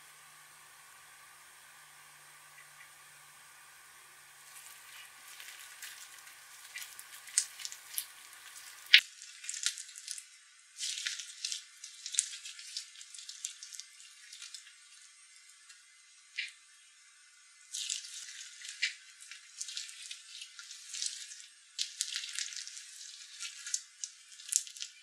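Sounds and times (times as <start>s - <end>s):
slime crackling and popping: 4.4s - 14.8s, 17.7s - 25.0s.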